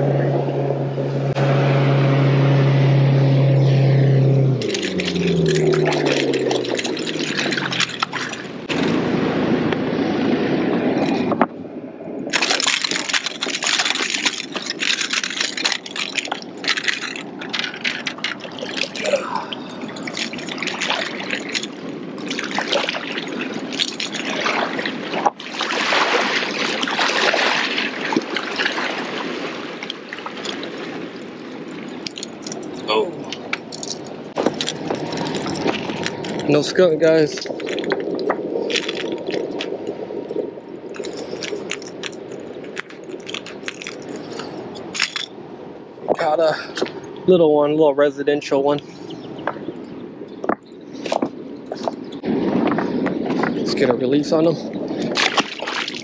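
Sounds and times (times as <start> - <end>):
motorboat engine humming: 0.0 - 56.0
water lapping among rocks: 4.5 - 9.1, 12.3 - 47.1, 49.1 - 56.0
clattering and clicking from handling: 12.3 - 19.0.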